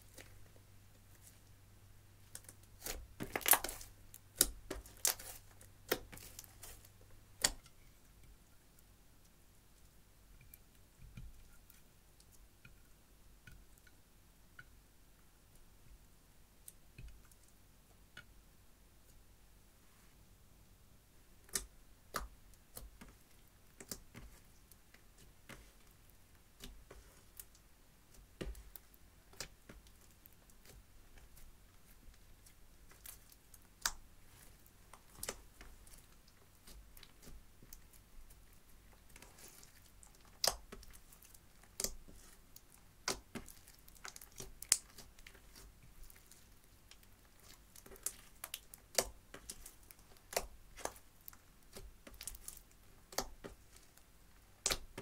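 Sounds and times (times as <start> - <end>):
slime sticky clicks and pops: 40.3 - 41.0.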